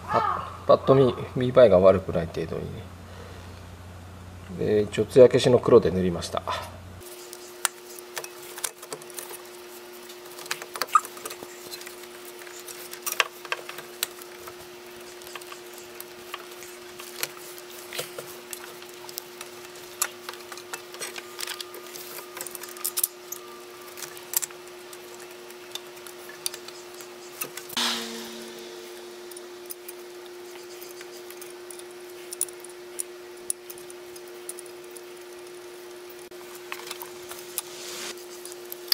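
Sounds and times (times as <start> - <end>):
steady low hum: 0.0 - 38.8
brief scraping rush: 27.8 - 29.4.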